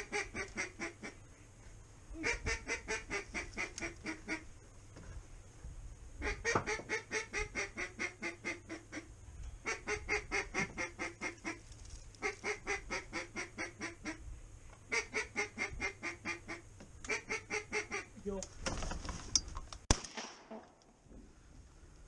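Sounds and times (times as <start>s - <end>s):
duck call quacking: 0.0s - 1.2s, 2.2s - 4.5s.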